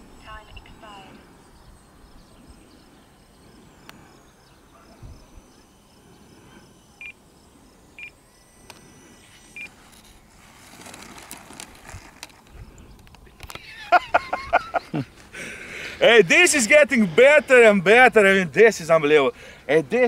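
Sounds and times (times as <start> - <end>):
electric fan whine: 0.0 - 20.0
short electronic beeps: 8.0 - 8.2, 9.2 - 9.7.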